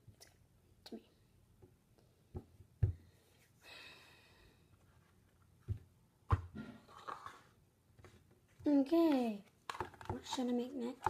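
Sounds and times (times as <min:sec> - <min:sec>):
breathy sigh: 0:03.6 - 0:04.6.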